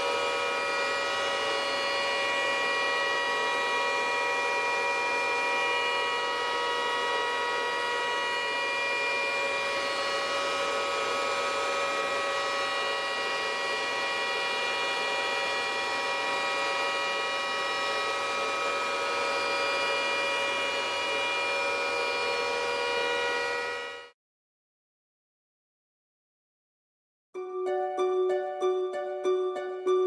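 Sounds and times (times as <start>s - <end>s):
cooling fans whining: 0.0s - 24.0s.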